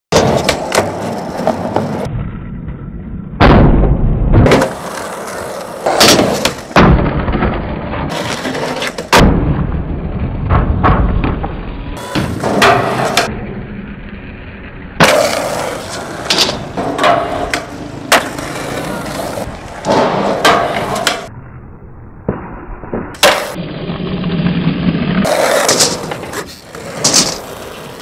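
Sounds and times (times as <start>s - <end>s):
skateboard landing slaps: 0.1s - 2.1s, 3.4s - 9.6s, 15.0s - 21.3s, 22.3s - 23.6s, 25.2s - 28.0s
skateboard wheels rolling and grinding: 0.1s - 21.3s, 22.3s - 28.0s.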